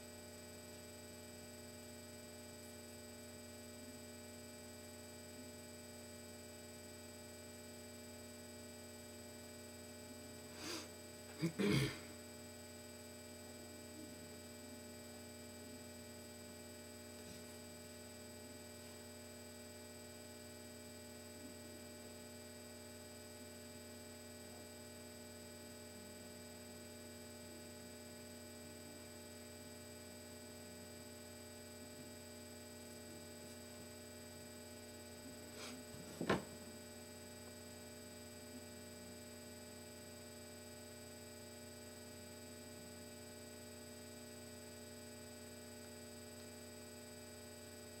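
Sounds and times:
electrical mains hum: 0:00.0 - 0:48.0
small tap: 0:36.1 - 0:36.5.

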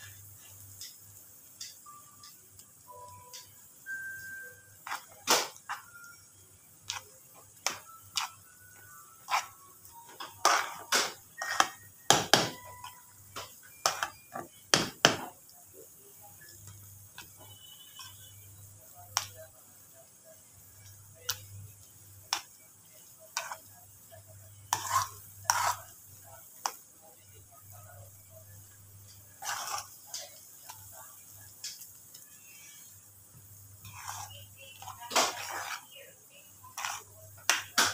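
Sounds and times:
metal spoon scraping a pan: 0:04.8 - 0:06.2, 0:06.9 - 0:08.6, 0:09.2 - 0:14.6, 0:23.2 - 0:26.8, 0:27.7 - 0:30.9, 0:33.8 - 0:36.0, 0:36.6 - 0:37.9.

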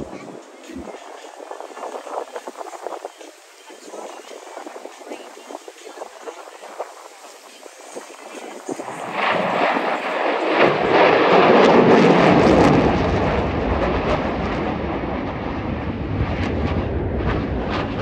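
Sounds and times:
aircraft flying past: 0:04.1 - 0:18.0.

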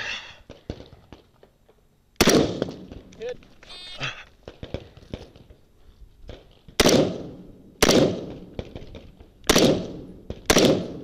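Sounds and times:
rifle shots with echo: 0:02.2 - 0:03.1, 0:06.8 - 0:11.0.

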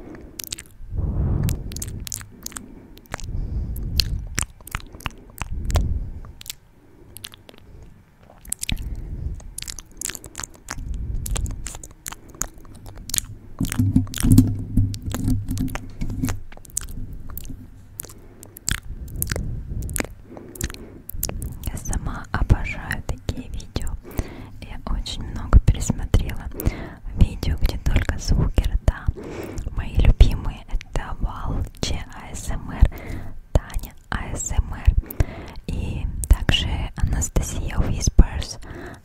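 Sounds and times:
breathy swells: 0:00.0 - 0:14.8, 0:16.7 - 0:22.4
low buzzing: 0:00.0 - 0:26.6
wet mouth clicks and smacks: 0:00.1 - 0:00.8, 0:01.4 - 0:39.0.

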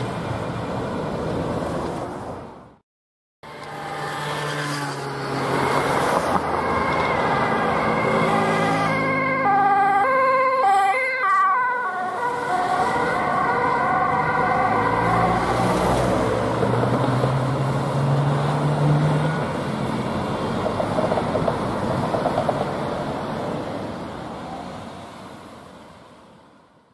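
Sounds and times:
road traffic: 0:00.0 - 0:02.8, 0:03.4 - 0:26.9
ambulance siren: 0:03.5 - 0:17.0.

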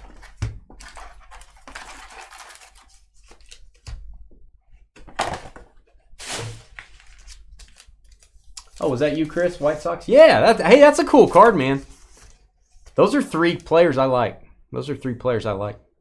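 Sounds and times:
paper envelopes rustling and tapping: 0:00.0 - 0:04.4, 0:05.0 - 0:09.9.

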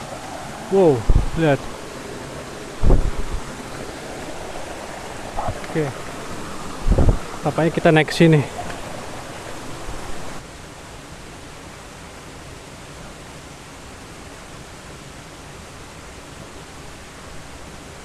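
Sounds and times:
waterfall rushing: 0:00.0 - 0:10.5.

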